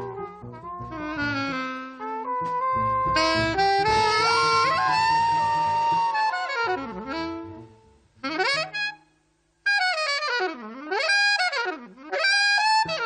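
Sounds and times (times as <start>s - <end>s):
double bass: 0.0s - 8.7s
alto saxophone improvising: 0.0s - 9.1s, 9.7s - 13.0s.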